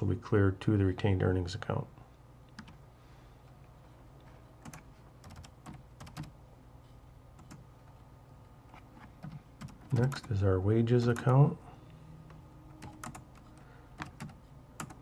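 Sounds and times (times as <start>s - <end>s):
computer keyboard keystrokes: 2.6s - 2.8s, 4.6s - 6.3s, 9.2s - 10.3s, 12.8s - 15.0s.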